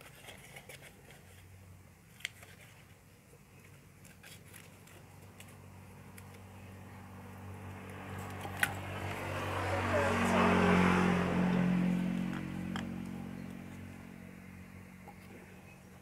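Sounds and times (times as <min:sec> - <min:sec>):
low hum: 0:05.3 - 0:16.0.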